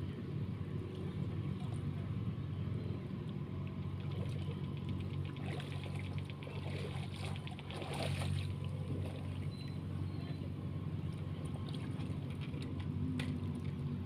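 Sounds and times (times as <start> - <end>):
low engine drone: 0.0 - 14.0
quick light clicks and rattles: 3.6 - 6.6.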